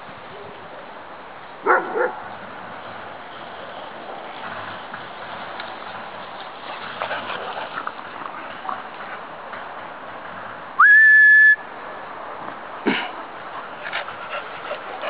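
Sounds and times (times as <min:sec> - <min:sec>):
person whistling: 0:10.8 - 0:11.6.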